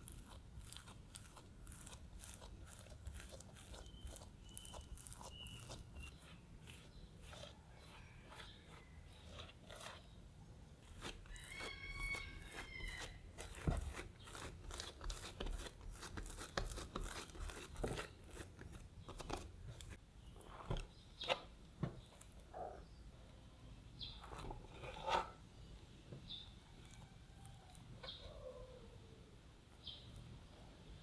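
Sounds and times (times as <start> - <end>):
dough rustling and tapping: 10.8 - 22.3.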